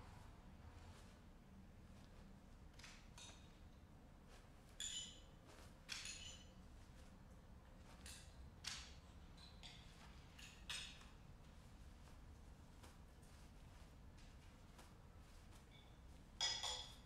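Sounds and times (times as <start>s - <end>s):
cloth rustling: 0.0s - 17.0s
light clinks: 4.7s - 6.6s, 15.7s - 17.0s.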